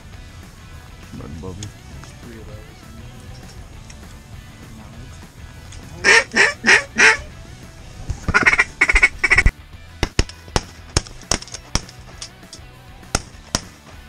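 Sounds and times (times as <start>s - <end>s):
duck call quacks: 6.0s - 7.3s, 8.3s - 9.5s
shotgun cracks: 10.0s - 12.3s, 13.1s - 13.8s.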